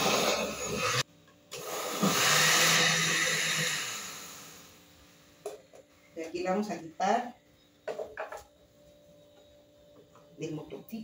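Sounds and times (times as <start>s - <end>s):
blender running: 0.0s - 1.0s, 1.6s - 4.8s.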